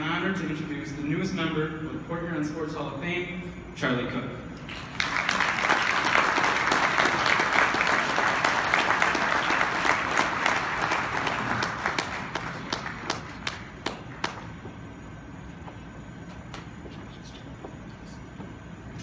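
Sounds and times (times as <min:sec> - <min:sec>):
audience applauding: 0:04.7 - 0:14.5.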